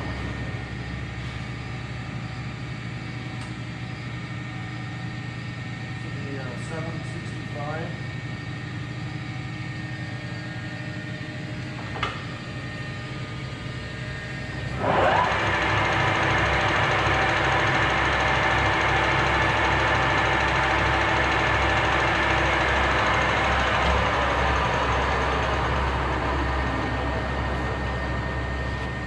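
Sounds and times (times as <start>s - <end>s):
click: 3.4s - 3.6s
lathe motor running: 5.3s - 29.0s
lathe spindle whining: 12.5s - 29.0s.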